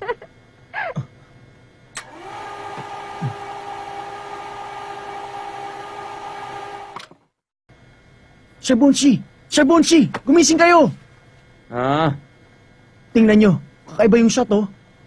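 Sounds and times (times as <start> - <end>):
click: 2.0 - 2.2.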